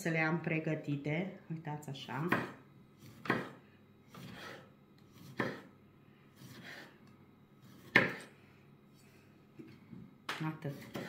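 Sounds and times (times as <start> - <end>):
knife slicing tomatoes: 2.2 - 5.7, 6.3 - 7.0, 7.6 - 8.3, 10.6 - 11.0.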